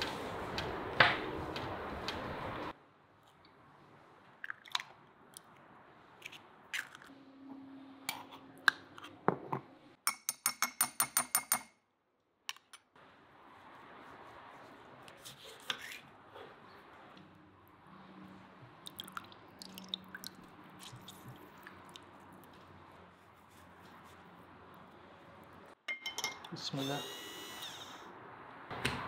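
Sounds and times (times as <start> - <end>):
glass and jar set on countertop: 9.2 - 9.7, 25.9 - 26.5.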